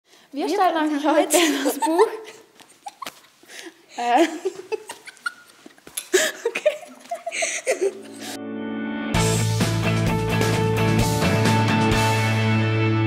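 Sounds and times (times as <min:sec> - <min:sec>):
girls giggling and laughing: 0:01.1 - 0:08.4
background music: 0:07.4 - 0:13.0.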